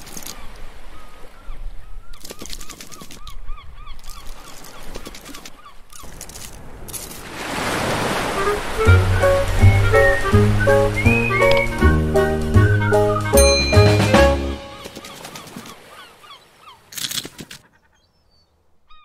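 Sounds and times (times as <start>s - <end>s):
surf wave rushing in: 7.2s - 13.2s.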